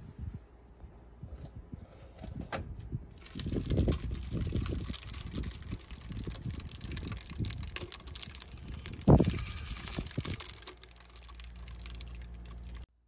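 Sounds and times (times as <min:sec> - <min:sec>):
residue crackling and ticking: 0:03.2 - 0:12.9
low steady hum: 0:03.2 - 0:13.0.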